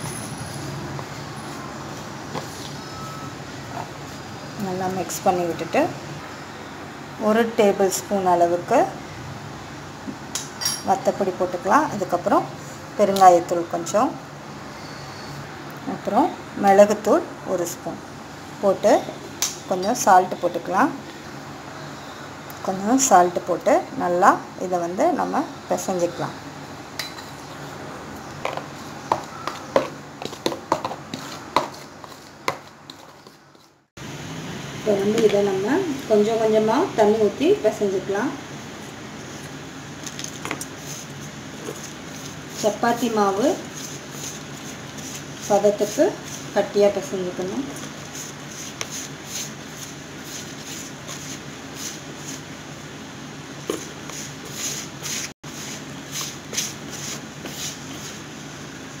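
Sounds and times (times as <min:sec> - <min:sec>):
hand mixing flour in a bowl: 0:28.5 - 0:33.8, 0:38.8 - 0:52.5, 0:53.6 - 0:58.3.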